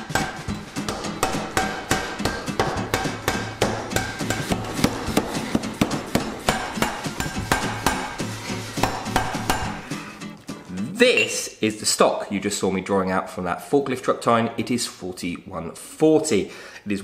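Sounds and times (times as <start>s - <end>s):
power hammer striking metal: 0.0s - 8.2s.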